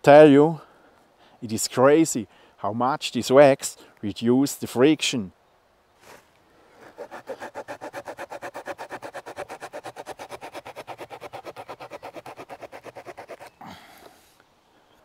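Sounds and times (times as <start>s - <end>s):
saw rasping through wood: 6.8s - 13.6s.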